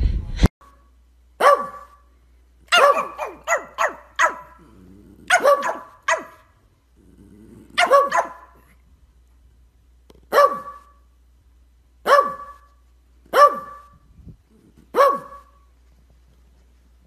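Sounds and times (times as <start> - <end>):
dog barking: 1.4 - 2.1, 2.7 - 6.6, 7.7 - 8.7, 10.3 - 11.0, 12.0 - 14.0, 14.9 - 15.7.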